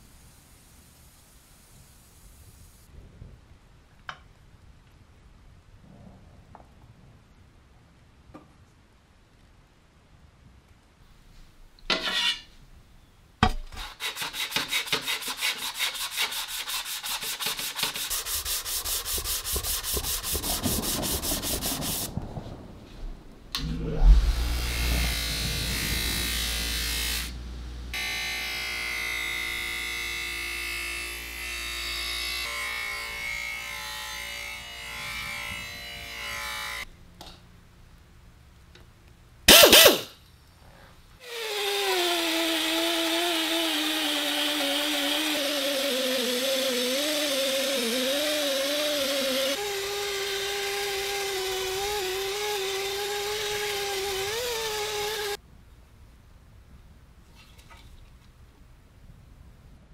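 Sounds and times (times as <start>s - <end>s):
rapid scratching strokes: 13.8s - 22.1s
air polisher burst: 23.6s - 30.0s, 39.5s - 40.2s, 41.2s - 55.4s.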